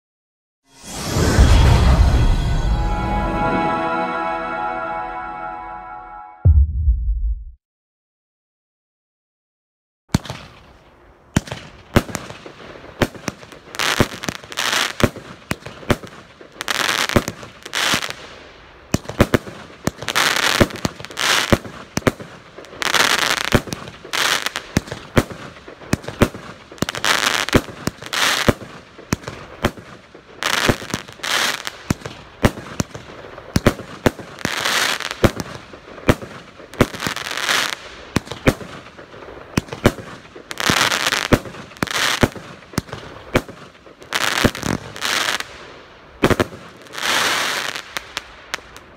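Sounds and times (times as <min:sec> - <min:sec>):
hissing crackle of firework stars: 0:10.2 - 0:48.9.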